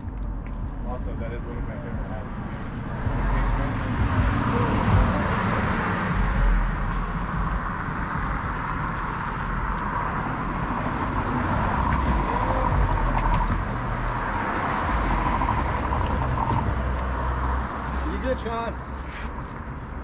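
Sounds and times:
street traffic rumble: 0:00.0 - 0:20.0.

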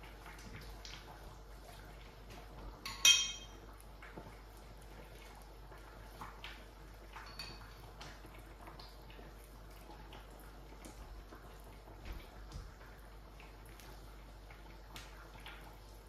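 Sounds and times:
metal clinking on ceramic bowl: 0:02.8 - 0:03.6, 0:07.2 - 0:07.7.

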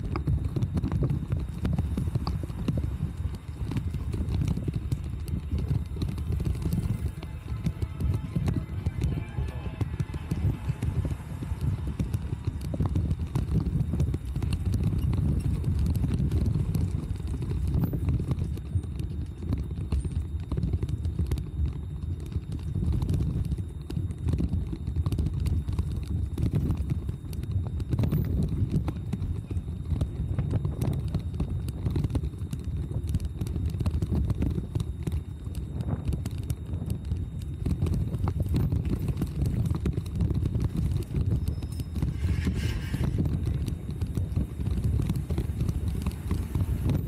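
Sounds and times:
bike rattling over paving stones: 0:00.0 - 0:47.0
low rumble of tyres on cobbles: 0:00.0 - 0:47.0
wind buffeting microphone: 0:00.0 - 0:47.0
bicycle frame rattling: 0:38.0 - 0:47.0.

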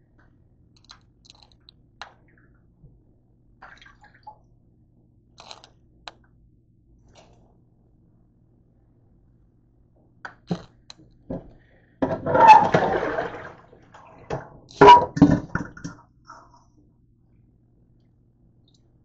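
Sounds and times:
pot clanking and splashing: 0:12.0 - 0:16.0.

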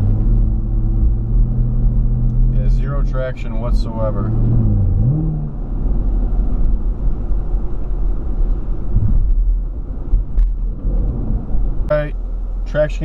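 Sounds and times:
car engine and tyre noise: 0:00.0 - 0:13.0.

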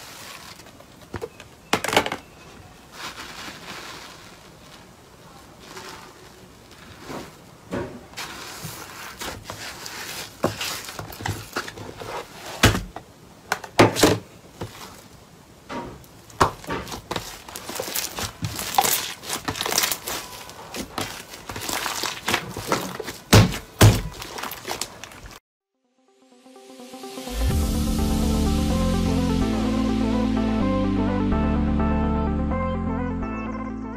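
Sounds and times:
hands squishing slime: 0:16.5 - 0:25.3.

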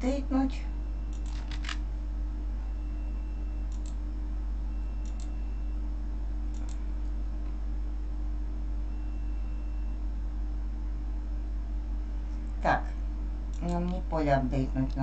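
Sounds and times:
steady low hum: 0:00.0 - 0:15.0
keyboard and mouse clicks: 0:03.7 - 0:04.0, 0:05.0 - 0:05.4, 0:06.5 - 0:06.8.

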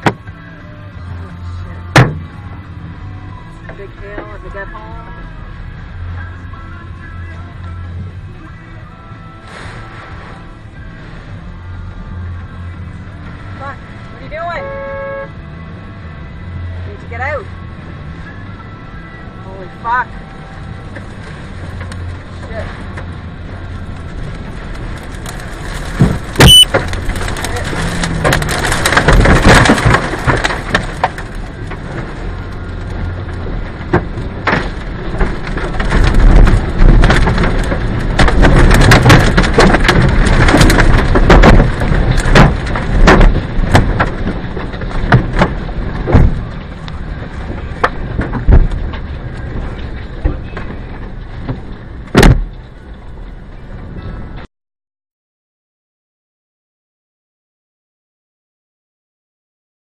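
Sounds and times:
heavy rain: 0:01.0 - 0:15.1, 0:19.3 - 0:54.4
violent wind: 0:20.1 - 0:54.5
debris knocking and cracking: 0:24.3 - 0:52.6.

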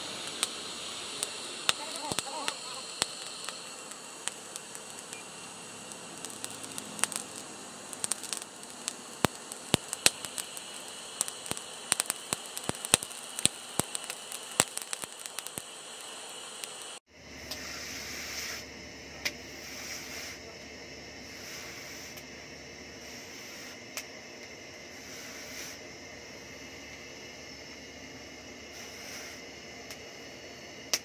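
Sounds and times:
forge fire crackling and popping: 0:00.0 - 0:17.6, 0:21.1 - 0:31.0
steady hiss: 0:00.0 - 0:31.0.

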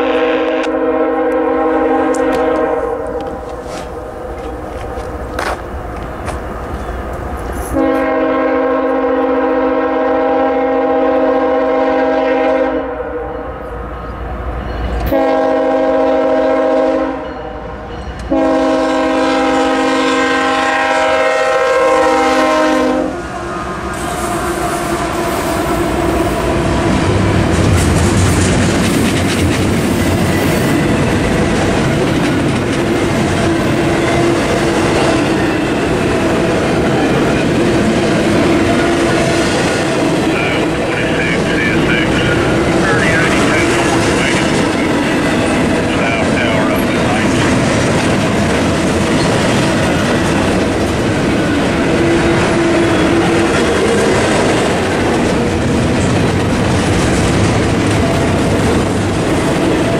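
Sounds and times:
locomotive air horn blasts: 0:00.0 - 0:03.4, 0:07.6 - 0:13.6, 0:15.1 - 0:17.7, 0:18.3 - 0:27.1
train wheels clacking on rail joints: 0:02.0 - 0:08.0, 0:27.4 - 0:40.4, 0:42.2 - 0:59.9
locomotive engine running: 0:23.2 - 0:59.9.

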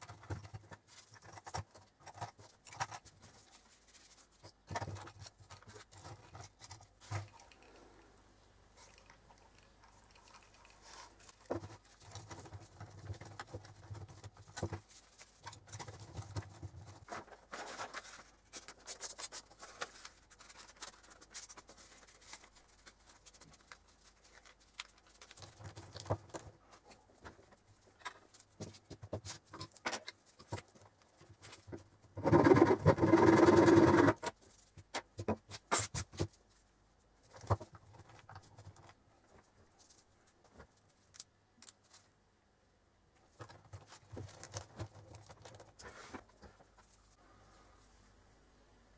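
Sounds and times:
gloved hands rustling: 0:10.1 - 0:29.5.

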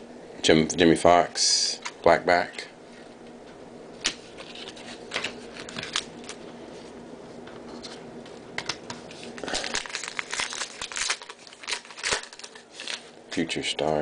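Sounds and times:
wrapper tearing and crinkling: 0:09.1 - 0:13.1.

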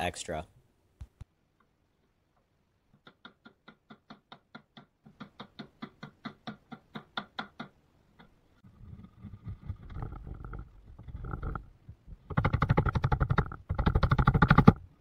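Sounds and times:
mallet tapping wood chisel: 0:02.9 - 0:08.4.

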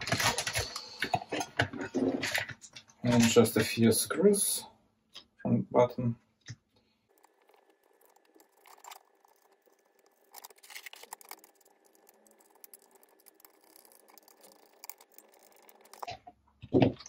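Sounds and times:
small parts clicking and rattling: 0:07.1 - 0:16.1.

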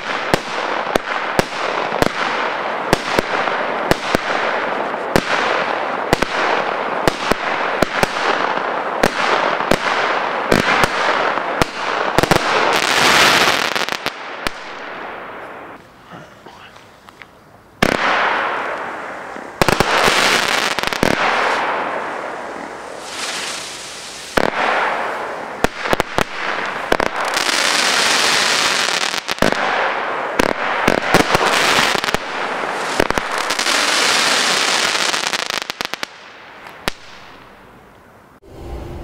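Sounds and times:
firework bangs: 0:00.0 - 0:15.8, 0:17.8 - 0:37.6
firework crackles: 0:00.0 - 0:15.8, 0:17.8 - 0:37.7
firework hissing: 0:18.9 - 0:26.2.

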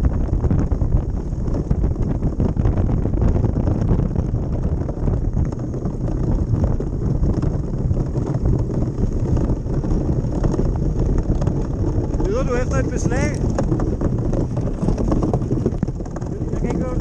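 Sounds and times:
runners rumbling over ice: 0:00.0 - 0:17.0
wind buffeting microphone: 0:00.0 - 0:17.0.

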